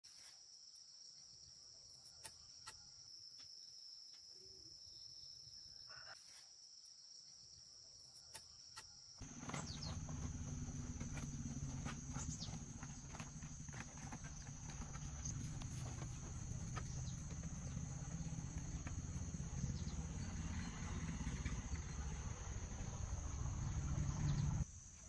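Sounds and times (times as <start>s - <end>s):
low rumble: 9.2s - 24.6s.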